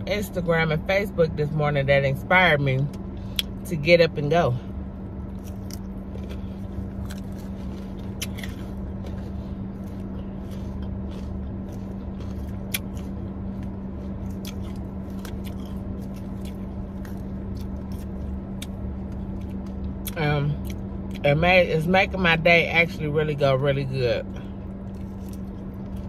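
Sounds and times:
air conditioning drone: 0.0s - 26.0s
person chewing and eating: 5.2s - 21.2s, 24.4s - 26.0s.

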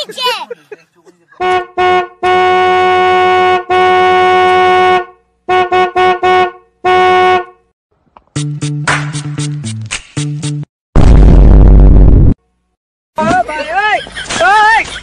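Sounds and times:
car horn honking: 1.4s - 7.6s.

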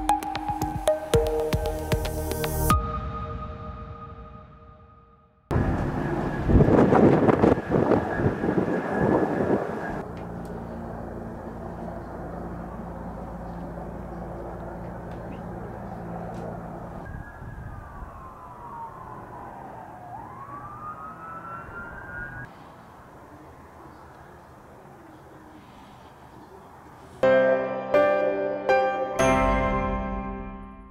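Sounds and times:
emergency vehicle siren wail: 5.5s - 10.4s, 14.6s - 22.5s
helicopter rotor noise: 5.5s - 17.0s
low engine hum: 5.5s - 22.2s.

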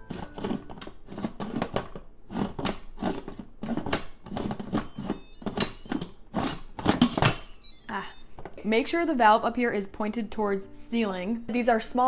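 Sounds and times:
faint high squeaks: 4.8s - 6.1s.

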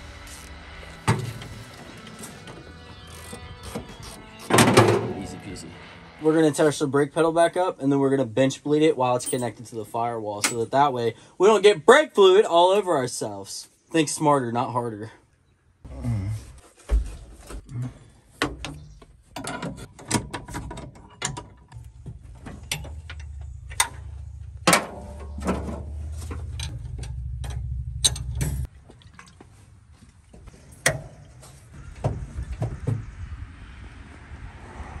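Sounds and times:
low steady hum: 21.7s - 30.4s.

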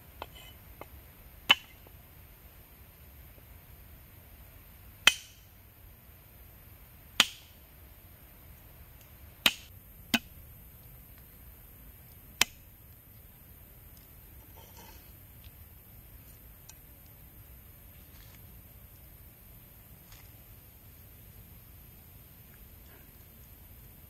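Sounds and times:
cleaver striking wooden block: 1.5s - 1.8s, 5.0s - 5.5s, 7.2s - 7.6s, 9.4s - 10.4s.

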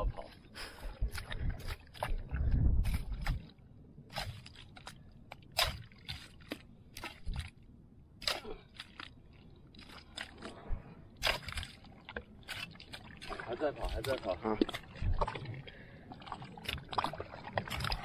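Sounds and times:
spade scraping in sticky mud: 4.1s - 4.9s.

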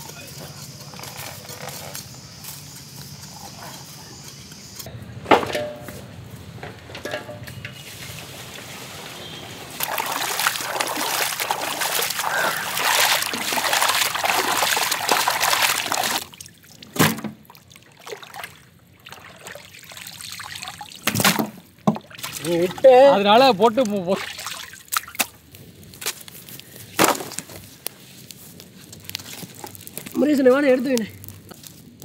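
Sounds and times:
water pouring into a metal pot: 9.7s - 16.8s, 17.6s - 21.1s, 22.1s - 25.2s
hands sloshing meat in water: 9.8s - 16.9s, 17.5s - 21.4s, 22.1s - 22.8s, 24.1s - 25.3s.

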